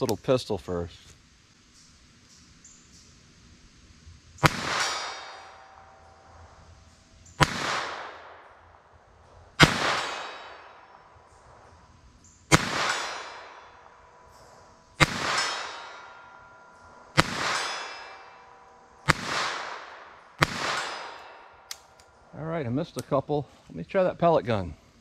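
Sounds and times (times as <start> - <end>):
pistol shots echoing: 4.4 - 6.1, 7.4 - 8.6, 9.6 - 11.2, 12.5 - 14.3, 15.0 - 16.4, 17.1 - 22.0.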